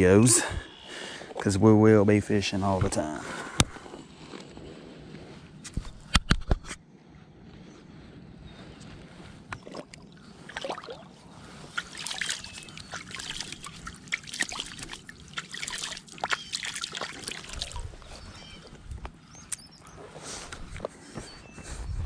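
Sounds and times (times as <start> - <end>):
rustling of rushes underfoot: 2.5 - 6.1, 7.1 - 14.0, 17.1 - 22.0
water splashing and trickling: 9.6 - 18.8.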